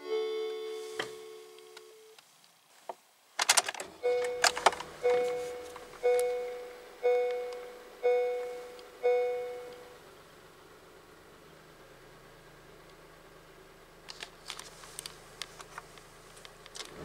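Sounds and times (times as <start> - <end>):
held tone: 0.0 - 2.2, 4.0 - 10.0
ignition clicks: 3.4 - 10.0, 14.0 - 17.0
seatbelt reminder chime: 4.0 - 10.0.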